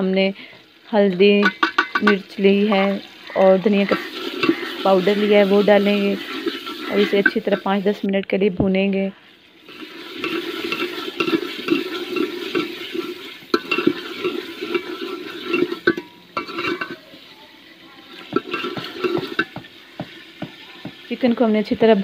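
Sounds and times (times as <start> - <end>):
ladle stirring food in pot: 0.5 - 8.0, 9.6 - 21.2
ladle knocking on pot: 1.4 - 2.3, 13.5 - 17.0, 18.3 - 21.1.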